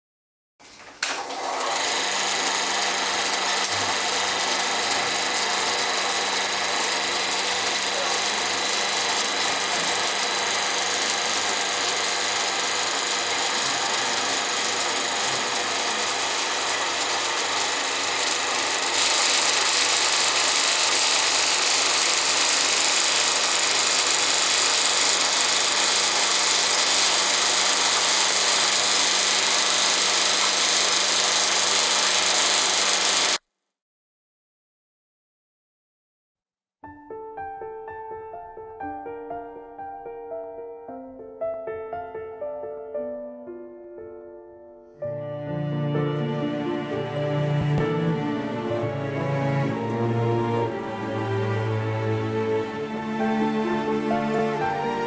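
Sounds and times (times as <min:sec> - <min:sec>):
film projector clatter: 0:01.0 - 0:33.4.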